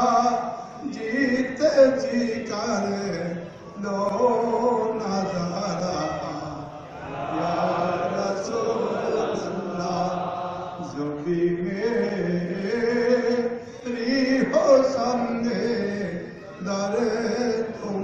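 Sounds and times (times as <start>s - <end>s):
men chanting together: 4.8s - 13.6s.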